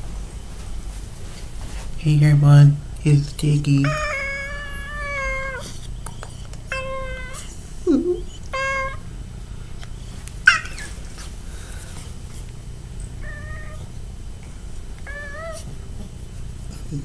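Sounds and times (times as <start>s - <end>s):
cat meowing: 3.8s - 5.8s, 6.7s - 7.5s, 8.2s - 9.0s, 13.2s - 13.9s, 15.0s - 15.7s.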